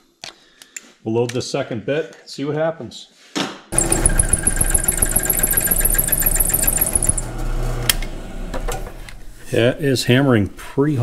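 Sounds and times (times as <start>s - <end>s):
drill bit chattering and squeaking: 3.8s - 7.3s
drill press humming: 3.8s - 9.5s.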